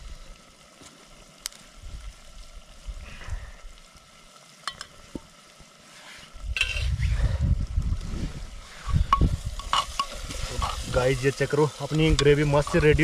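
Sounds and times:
steel bowl rustling rumble: 0:05.9 - 0:13.0.

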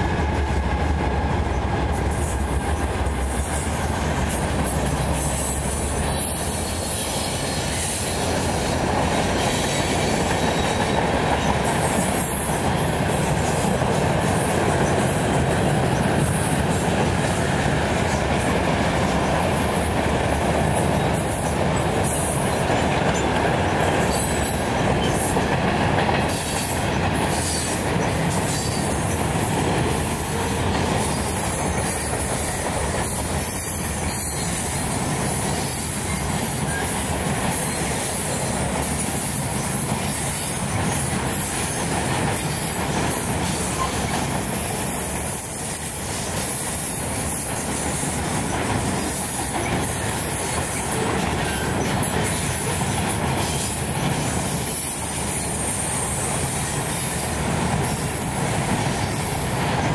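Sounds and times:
freight train cars rumbling: 0:00.0 - 0:59.9.

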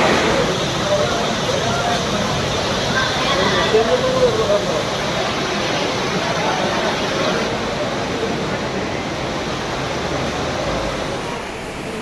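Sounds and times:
water splashing on flooded ground: 0:00.0 - 0:07.6
heavy rain pouring: 0:00.0 - 0:12.0.

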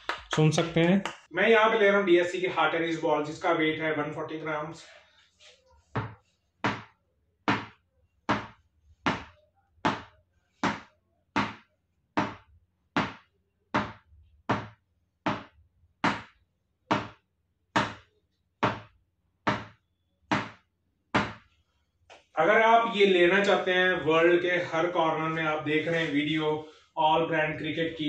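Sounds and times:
ball bouncing on cricket bat: 0:06.0 - 0:17.2, 0:17.8 - 0:20.6, 0:21.2 - 0:21.5.

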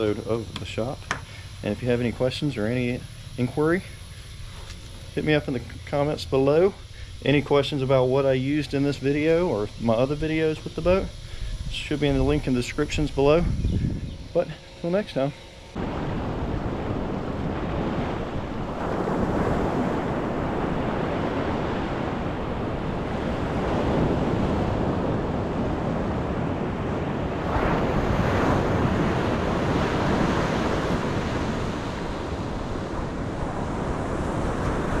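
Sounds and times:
wind buffeting microphone: 0:09.2 - 0:14.4, 0:15.8 - 0:35.0
small waves breaking on beach: 0:15.8 - 0:35.0.

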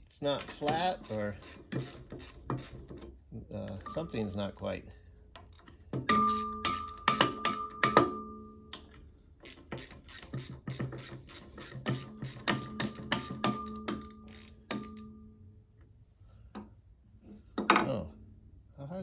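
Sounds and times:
sharp metal knocks ringing: 0:06.0 - 0:08.8.

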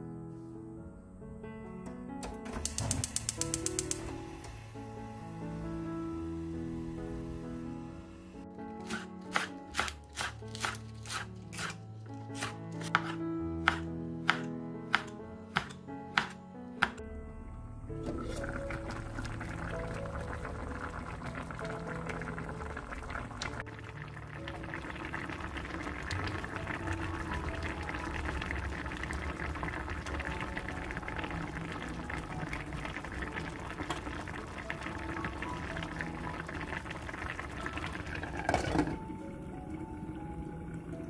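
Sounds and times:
soft background music: 0:00.0 - 0:41.0
stew bubbling in a pot: 0:18.1 - 0:41.0.

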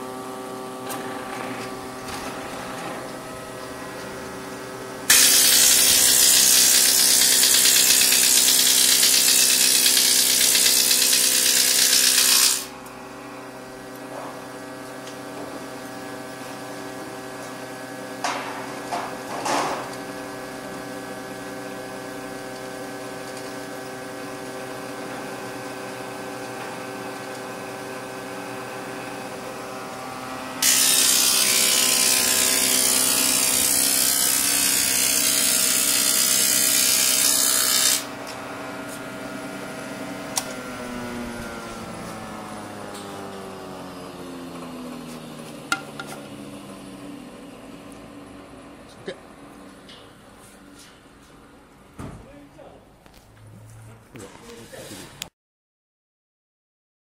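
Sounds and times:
woodworking machine motor humming: 0:00.0 - 0:51.8
hiss of board being planed: 0:05.1 - 0:12.7.

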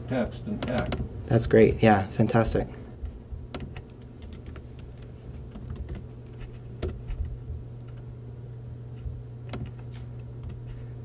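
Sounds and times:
low room hum: 0:00.0 - 0:11.0
laptop keyboard clicking: 0:03.5 - 0:07.3.

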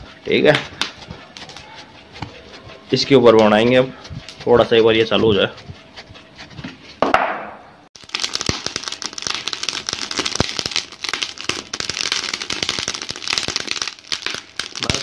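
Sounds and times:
fire crackling and popping: 0:08.0 - 0:15.0.

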